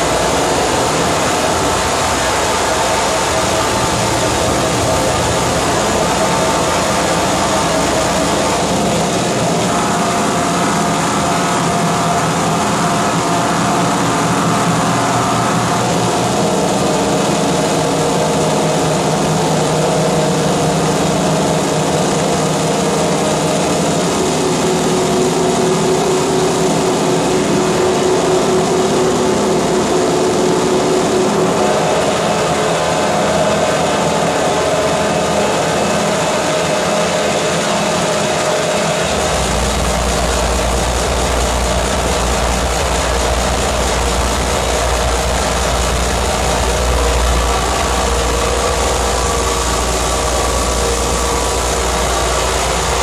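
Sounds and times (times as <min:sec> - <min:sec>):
droning pitched tones: 0:00.0 - 0:53.0
harsh electronic noise: 0:00.0 - 0:53.0.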